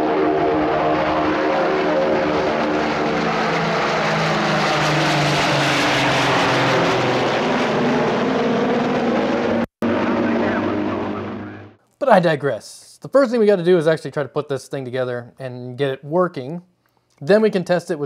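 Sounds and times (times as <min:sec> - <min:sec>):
propeller aircraft engines droning: 0:00.0 - 0:11.8.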